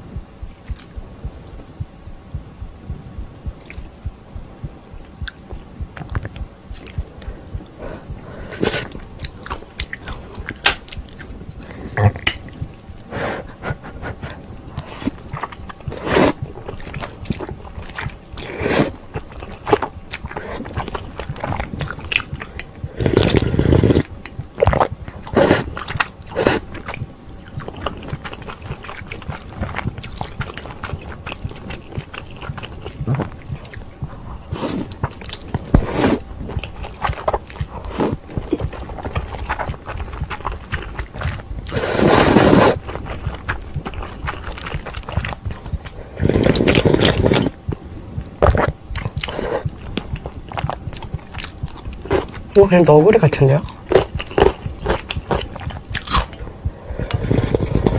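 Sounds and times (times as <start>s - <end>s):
wet chewing and lip smacks: 0.4s - 2.4s, 3.4s - 8.2s, 8.8s - 13.1s, 14.7s - 18.5s, 19.1s - 41.8s, 42.5s - 56.5s
slurping noodles: 15.9s - 16.4s, 18.4s - 19.0s, 22.9s - 24.1s, 24.7s - 26.9s, 34.5s - 36.3s, 37.9s - 45.0s, 46.1s - 47.6s.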